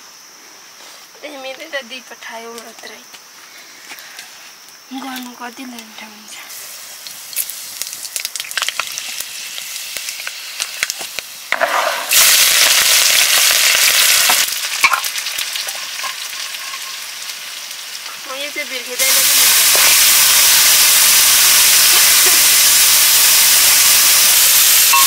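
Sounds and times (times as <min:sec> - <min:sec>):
food frying in hot oil: 0:06.5 - 0:25.0
loud sizzle: 0:06.5 - 0:25.0.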